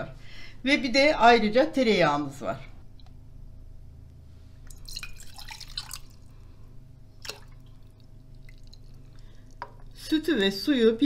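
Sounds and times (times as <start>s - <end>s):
liquid splashing into metal pot: 4.7s - 6.3s, 7.2s - 9.9s.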